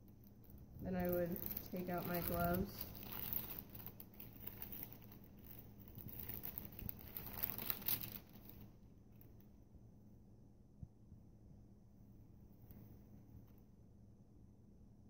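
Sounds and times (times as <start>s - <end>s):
paper crinkling and rustling: 0.0s - 9.4s.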